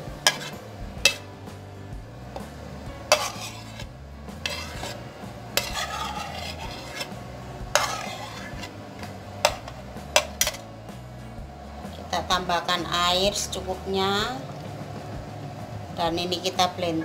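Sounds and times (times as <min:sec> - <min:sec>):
spoon scraping: 0:00.1 - 0:01.3, 0:03.1 - 0:10.7.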